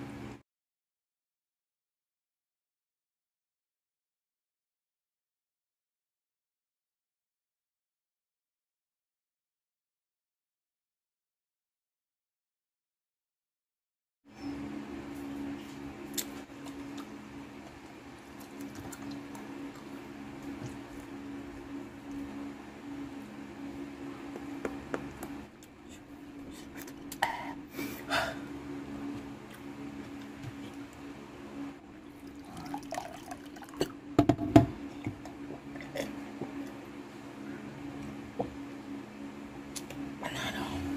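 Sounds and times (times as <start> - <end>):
steady low hum: 0.0 - 0.4, 14.3 - 40.9
man gulping water: 32.1 - 34.0, 35.0 - 36.8.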